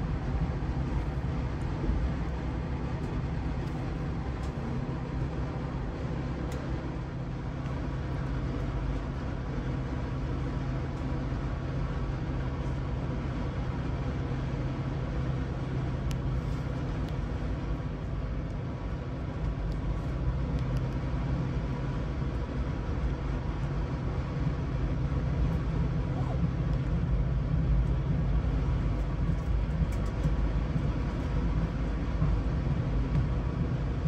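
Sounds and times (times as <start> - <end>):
constant low hum: 0.0 - 34.0
moving vehicle rumble: 0.0 - 34.0.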